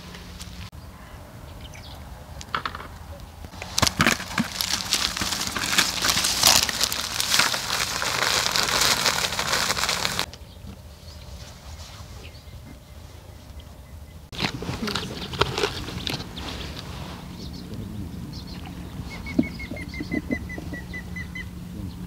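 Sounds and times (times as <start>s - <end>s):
crinkling rustle: 3.5s - 10.3s, 14.3s - 17.5s.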